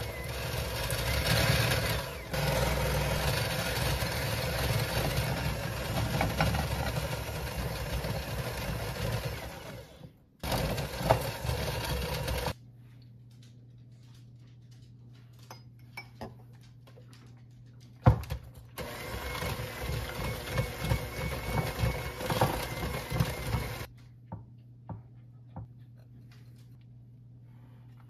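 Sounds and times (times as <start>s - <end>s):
electric hand mixer running: 0.0s - 12.6s, 18.8s - 23.9s.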